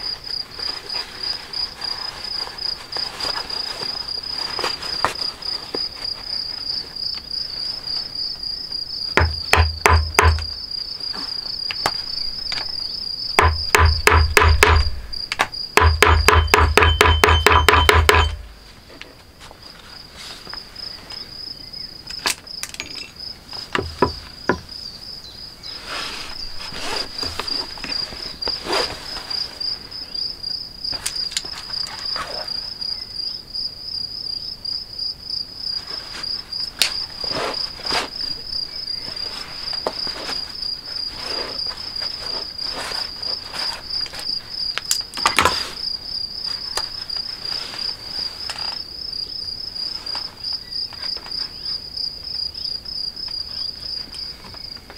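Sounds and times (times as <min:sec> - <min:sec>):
crickets chirping: 0:00.0 - 0:54.9
rapid knocking: 0:09.2 - 0:10.5, 0:13.4 - 0:15.0, 0:15.8 - 0:18.4, 0:23.8 - 0:24.7.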